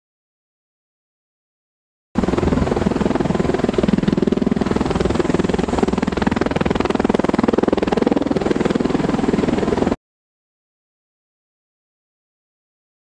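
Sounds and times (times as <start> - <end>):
aircraft engine noise: 2.2 - 10.0.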